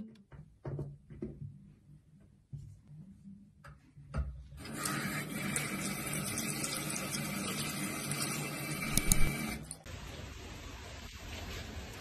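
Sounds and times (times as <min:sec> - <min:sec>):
tap water running into sink: 0:04.6 - 0:09.8.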